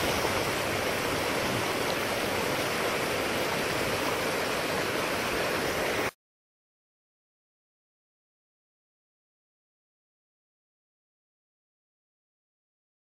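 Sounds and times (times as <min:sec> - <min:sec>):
water rushing over rocks: 0:00.0 - 0:06.2.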